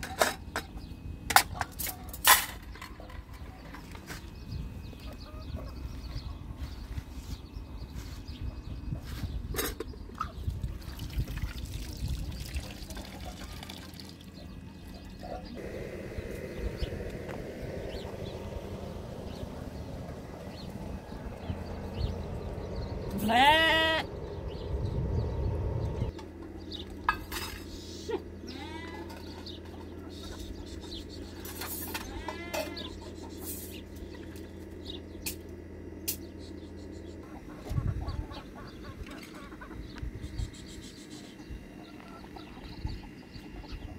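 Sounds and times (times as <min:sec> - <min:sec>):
farm animals calling: 0:20.3 - 0:24.6, 0:27.8 - 0:33.8, 0:36.9 - 0:43.9.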